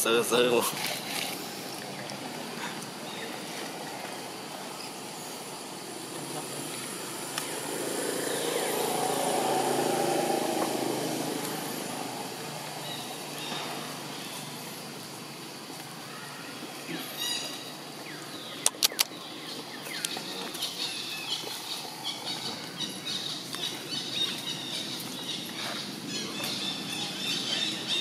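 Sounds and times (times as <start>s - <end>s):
outdoor background noise: 0.0s - 28.0s
vehicle engine passing: 5.2s - 14.8s.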